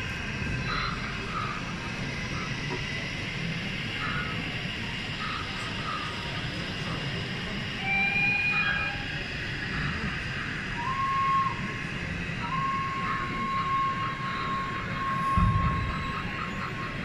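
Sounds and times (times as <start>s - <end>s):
hall hubbub: 0.0s - 17.0s
whistle-like tones: 7.8s - 9.2s, 10.7s - 11.8s, 12.4s - 16.9s.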